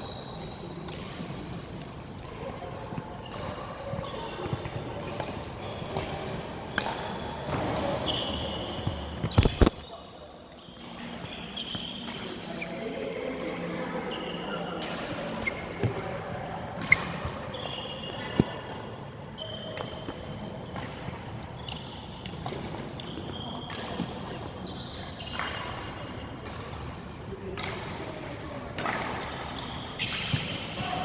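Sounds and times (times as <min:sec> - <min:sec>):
shoes squeaking on wooden floor: 0:08.0 - 0:10.0, 0:23.1 - 0:25.2.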